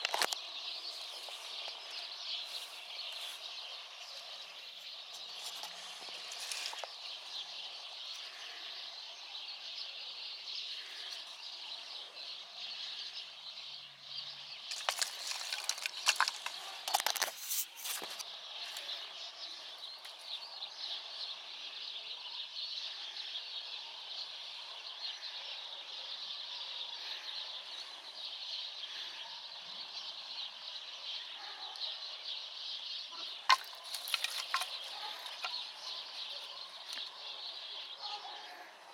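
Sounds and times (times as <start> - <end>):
sticks knocking together: 14.7 - 18.2, 33.5 - 35.6.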